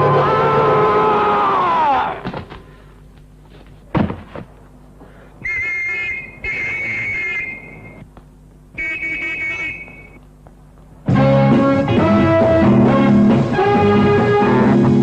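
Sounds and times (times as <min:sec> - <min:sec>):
sudden thud: 0:03.9 - 0:04.5
high-pitched whistle: 0:05.4 - 0:08.0, 0:08.8 - 0:10.2.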